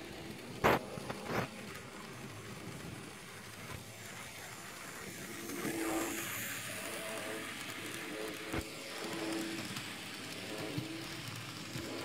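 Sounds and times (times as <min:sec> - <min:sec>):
model train motor whirring: 0:00.0 - 0:12.0.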